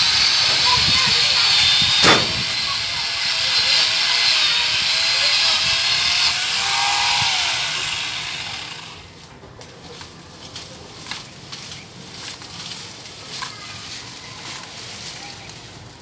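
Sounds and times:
angle grinder cutting wood: 0.0s - 9.1s.

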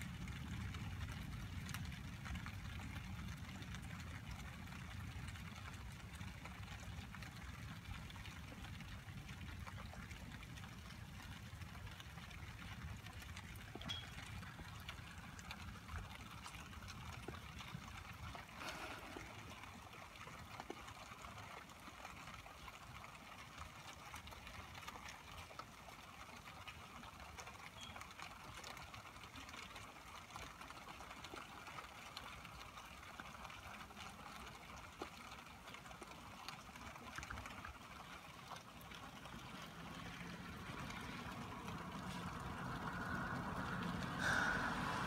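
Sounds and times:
drips and splashes: 0.0s - 45.0s
rain falling on a street: 0.0s - 45.0s
vehicle passing: 39.4s - 45.0s.

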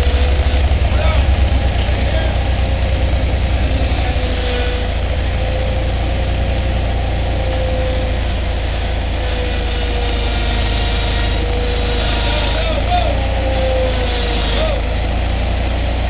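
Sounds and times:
loader engine idling: 0.0s - 16.0s.

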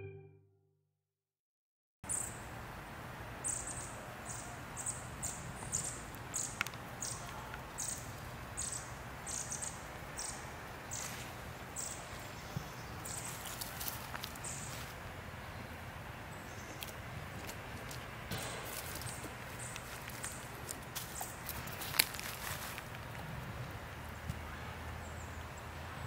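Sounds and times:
rustling: 17.4s - 23.2s.

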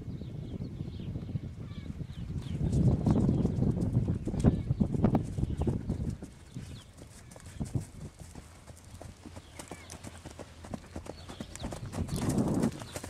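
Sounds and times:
horse hoofbeats on dirt: 3.0s - 13.0s.

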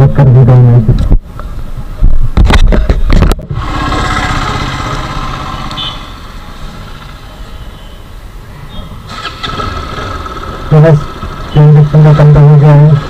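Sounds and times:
motorcycle engine running: 2.8s - 7.2s, 9.1s - 13.0s.

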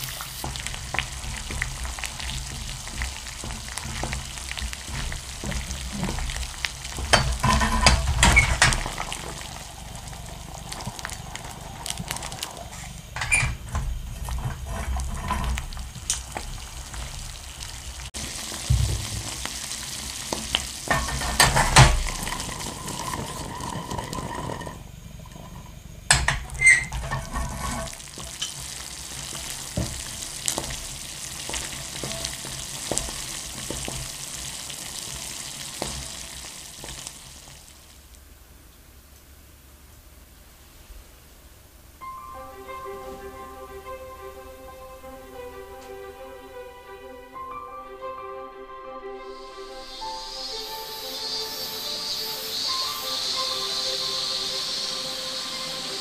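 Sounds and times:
nuts sizzling in a pan: 0.0s - 38.3s, 42.1s - 47.2s, 49.2s - 56.0s
nuts rattling in a metal pan: 20.4s - 24.8s.

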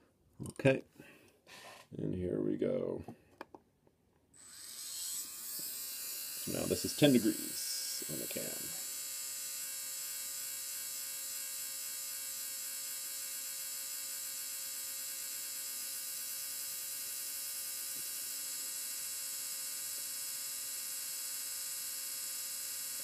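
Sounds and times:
electric motor high-pitched whine: 4.4s - 23.0s.

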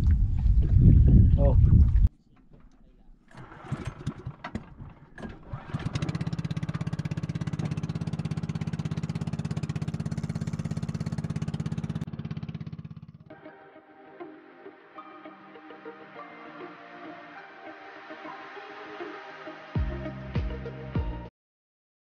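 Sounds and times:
engine sputtering while starting: 3.2s - 13.3s
small boat engine chugging: 3.2s - 13.3s.

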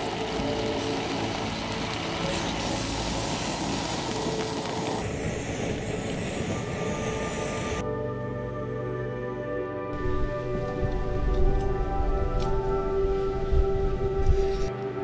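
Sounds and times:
sausages sizzling in pan: 0.0s - 5.7s
gas burner rushing: 0.0s - 7.8s.

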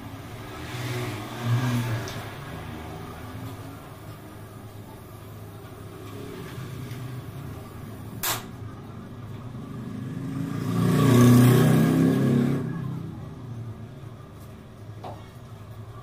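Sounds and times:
vehicle engine passing by: 0.3s - 3.5s, 9.6s - 13.5s
sharp clank: 8.2s - 8.6s.

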